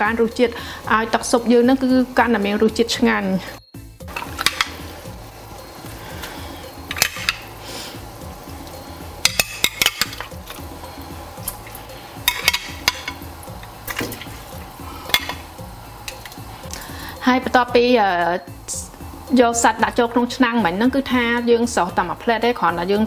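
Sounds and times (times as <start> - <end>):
clinks and knocks against metal pot: 4.1 - 4.8, 9.2 - 10.6, 12.2 - 13.3, 15.1 - 15.4.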